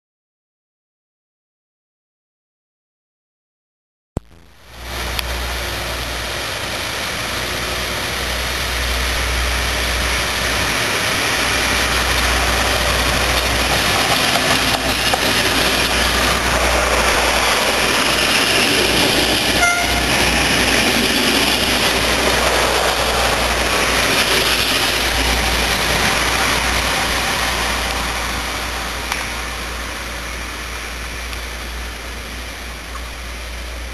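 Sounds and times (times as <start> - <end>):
diesel train engine: 4.4 - 33.9
train wheels on rails: 4.7 - 33.9
brief high tone: 19.6 - 20.2.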